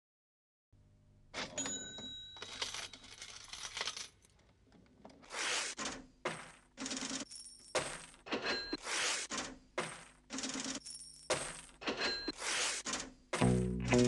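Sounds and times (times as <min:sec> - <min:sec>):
cash register clatter: 0:01.4 - 0:04.2.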